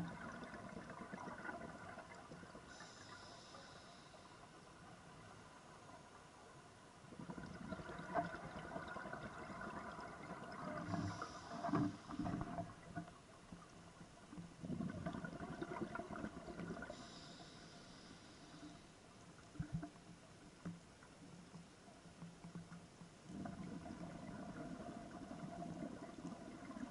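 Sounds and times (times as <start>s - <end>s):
exhaled bubbles gurgling underwater: 0.0s - 6.2s, 7.0s - 20.7s, 22.5s - 26.9s
regulator inhalation hiss: 2.7s - 4.4s, 10.9s - 12.2s, 16.9s - 18.9s.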